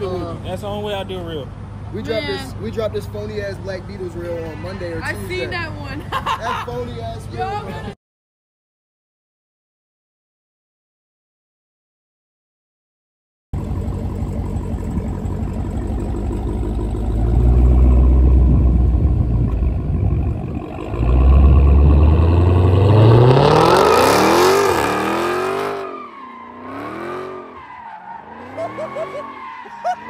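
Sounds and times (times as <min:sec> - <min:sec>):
car engine revving: 0:13.6 - 0:29.5.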